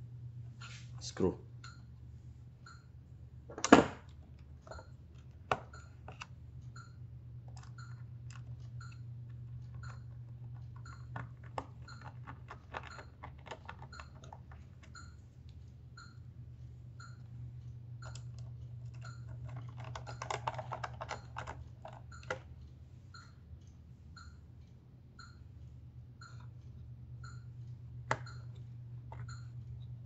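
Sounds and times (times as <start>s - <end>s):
steady low hum: 0.0s - 30.0s
clicks and taps of plastic parts: 3.5s - 6.3s, 18.0s - 22.5s, 28.0s - 29.5s.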